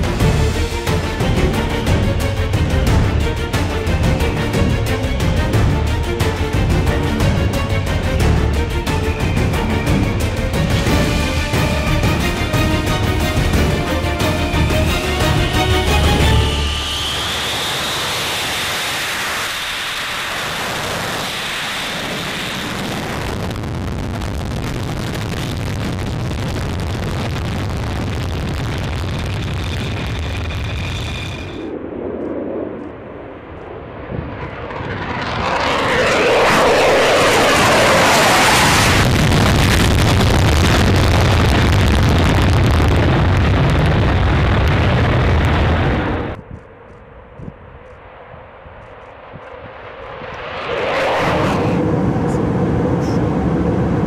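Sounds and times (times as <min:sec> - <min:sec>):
jet engines roaring with whine: 0:00.0 - 0:54.0
deep rumble: 0:20.2 - 0:54.0.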